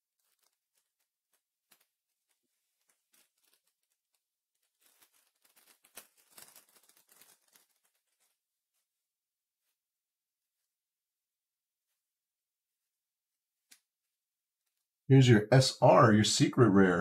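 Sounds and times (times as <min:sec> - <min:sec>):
cards rustling against each other: 0:00.0 - 0:08.9
cards clicking and flicking: 0:02.8 - 0:04.0, 0:04.8 - 0:08.3.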